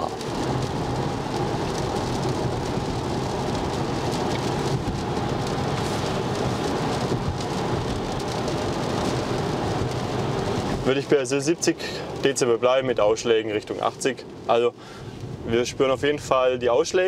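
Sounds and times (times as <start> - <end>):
wind noise: 0.0 - 10.9
tyres hissing on wet road: 0.0 - 17.0.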